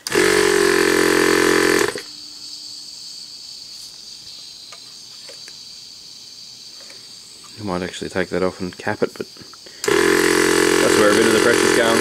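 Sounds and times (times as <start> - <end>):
compressed air blast: 0.0 - 3.3, 9.4 - 11.8
crickets trilling: 0.0 - 12.0.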